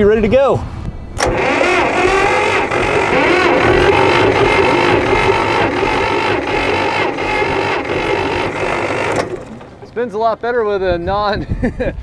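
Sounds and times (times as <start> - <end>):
starter motor cranking engine: 1.2 - 10.0.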